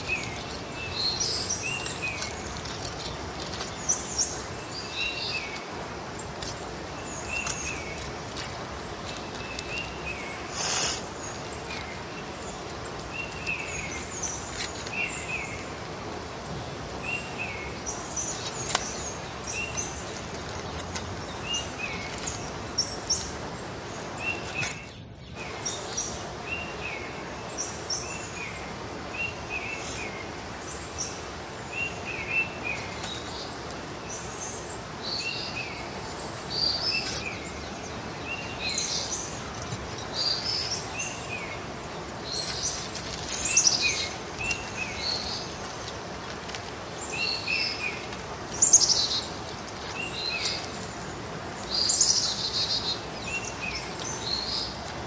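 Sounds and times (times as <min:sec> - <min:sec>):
outdoor background hiss: 0:00.0 - 0:55.0
small birds chirping: 0:00.0 - 0:55.0.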